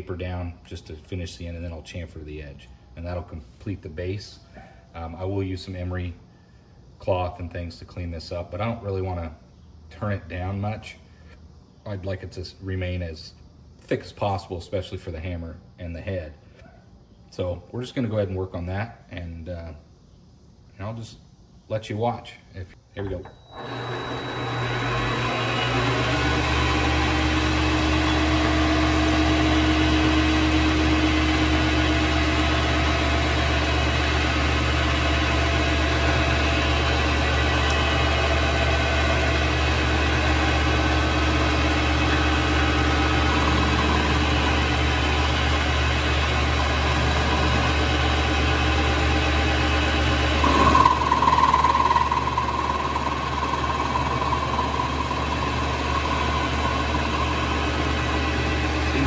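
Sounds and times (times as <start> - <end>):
lathe motor and spindle running: 23.2 - 59.0.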